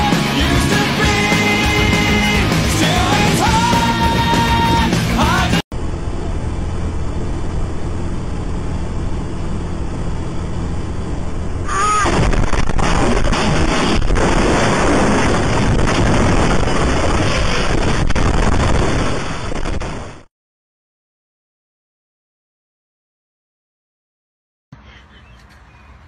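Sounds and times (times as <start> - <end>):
bus engine and road drone: 0.0 - 18.2, 24.8 - 26.0.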